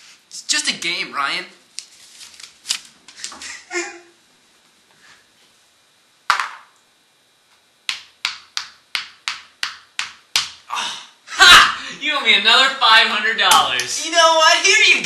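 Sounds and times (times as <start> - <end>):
game piece clicking on board: 7.9 - 10.6.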